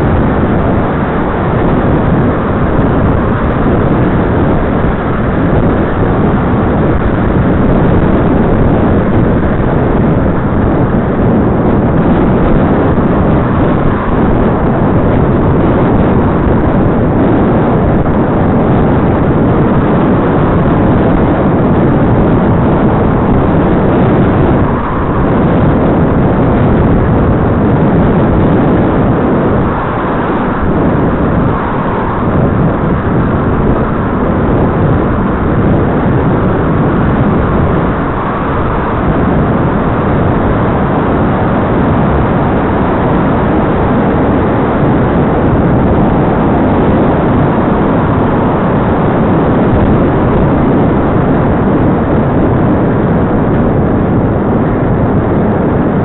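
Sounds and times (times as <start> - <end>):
wind rushing on microphone: 0.0 - 56.0
road traffic noise: 22.1 - 46.0.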